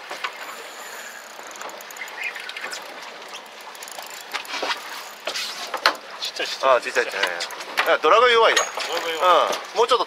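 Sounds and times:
wind and water hiss: 0.0s - 10.0s
fishing reel clicks: 0.8s - 5.2s.

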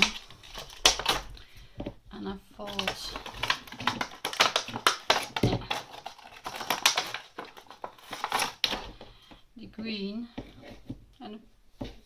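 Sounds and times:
plastic packaging crinkling: 0.0s - 1.5s, 2.6s - 9.1s.

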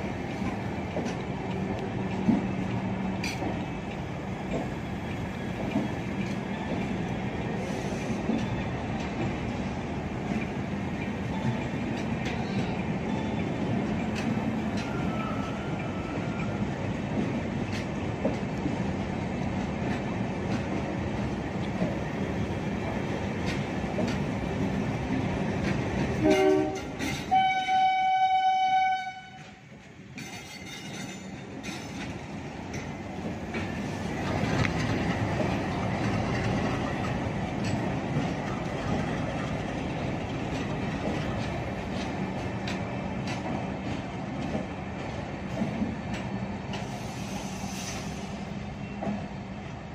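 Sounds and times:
train coaches rumbling and clattering: 0.0s - 49.9s
train horn: 26.2s - 29.6s.

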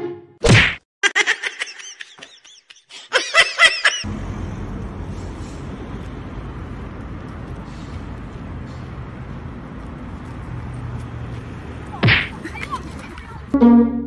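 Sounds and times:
person laughing: 1.0s - 4.1s
outdoor street hum: 3.1s - 14.0s.

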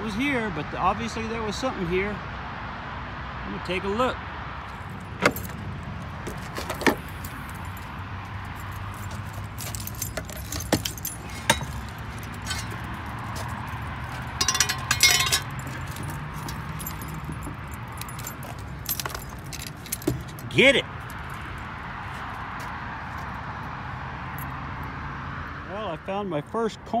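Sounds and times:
metal gear clinking and rattling: 8.6s - 21.4s.

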